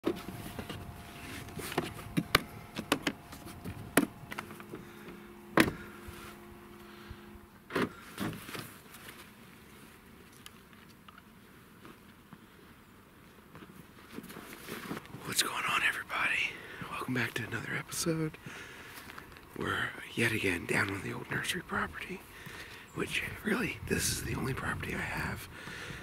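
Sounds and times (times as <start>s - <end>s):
clothing and backpack rustling: 0.0s - 10.7s, 13.4s - 15.2s
faint steady hum: 0.0s - 26.0s.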